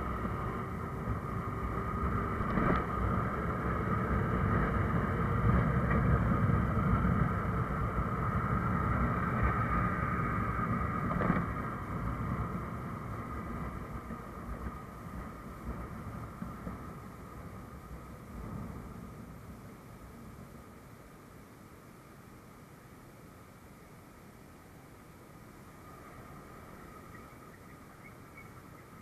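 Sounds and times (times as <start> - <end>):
wind on microphone: 0.0 - 19.1.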